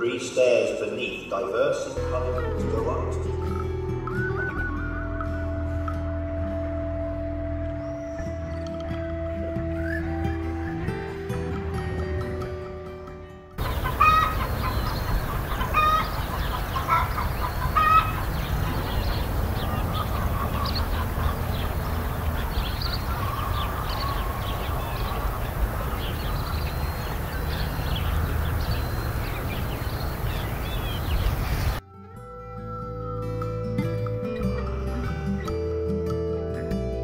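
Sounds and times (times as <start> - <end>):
chickens clucking: 13.6 - 31.8
steady low rumble: 13.6 - 31.8.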